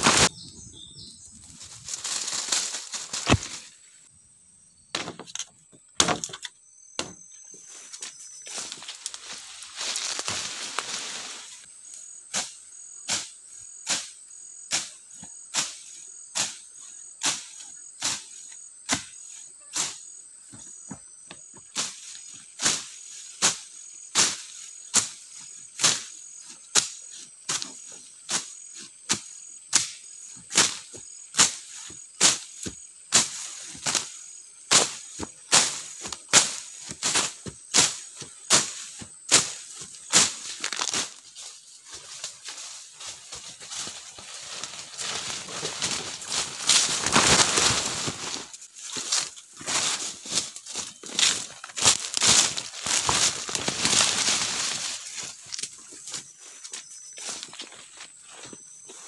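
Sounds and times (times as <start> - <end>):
insect chirring: 0.0 - 59.0
wood chopping strikes: 3.2 - 3.6, 4.9 - 5.4, 6.0 - 7.2.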